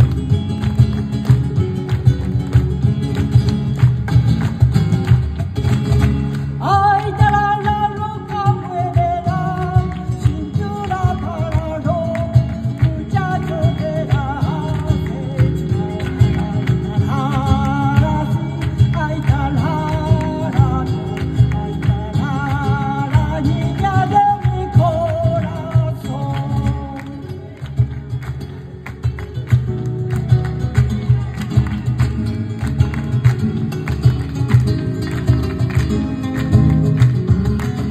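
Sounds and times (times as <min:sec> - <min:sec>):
percussion beat: 0:00.0 - 0:27.0, 0:27.6 - 0:37.9
hand-clapping: 0:00.0 - 0:37.9
strummed guitars: 0:00.0 - 0:37.9
person singing: 0:06.6 - 0:27.3.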